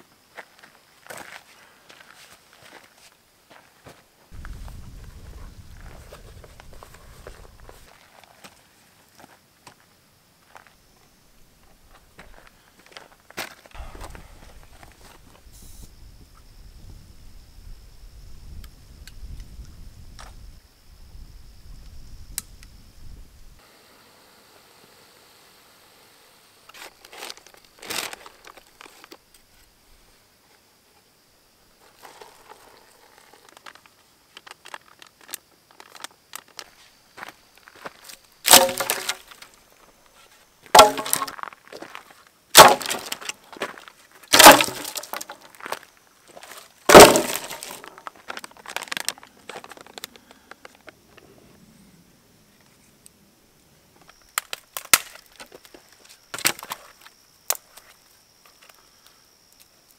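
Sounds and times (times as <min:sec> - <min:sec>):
foil pouch rustling: 0:46.3 - 0:50.1
foil pouch crinkling: 0:46.4 - 0:50.4.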